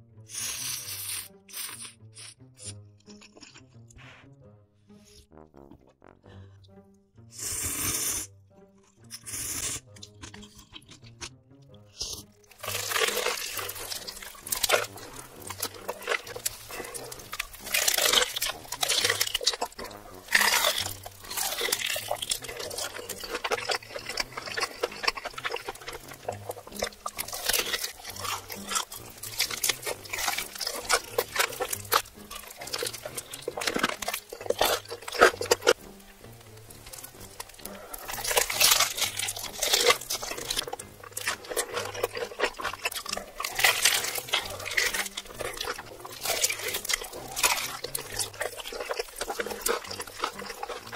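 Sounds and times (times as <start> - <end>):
wet chewing and lip smacking: 9.0 - 50.9
biting into fried chicken: 12.0 - 35.8, 36.5 - 50.9.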